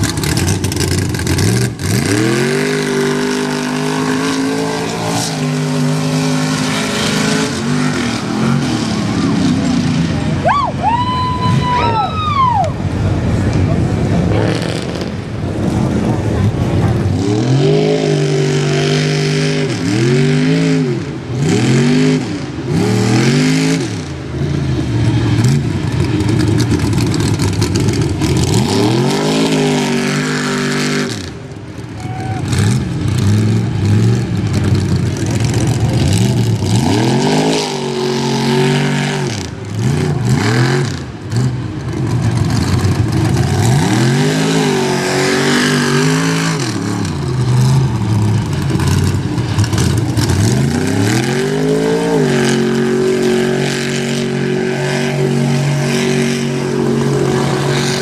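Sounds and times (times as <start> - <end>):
truck engine revving: 0.0 - 10.8, 12.8 - 58.0.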